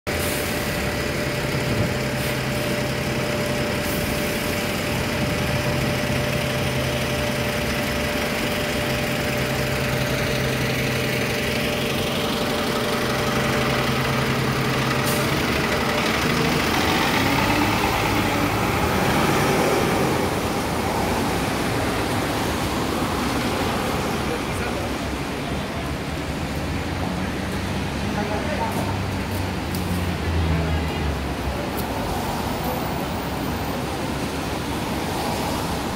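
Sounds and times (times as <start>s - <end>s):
passing traffic: 0.0s - 35.9s
bus engine idling: 0.1s - 35.9s.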